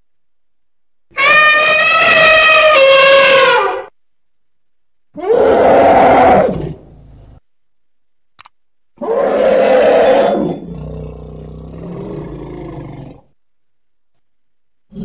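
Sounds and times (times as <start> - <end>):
elephant trumpeting: 1.1 - 3.9, 9.0 - 11.0.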